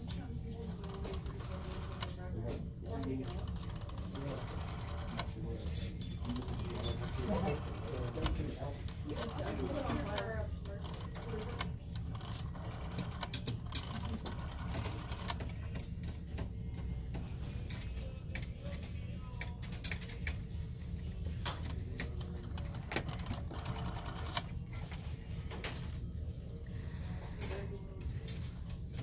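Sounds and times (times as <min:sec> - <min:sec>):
rotary telephone dial clicking: 0:03.0 - 0:05.3, 0:09.2 - 0:15.5, 0:22.6 - 0:24.4.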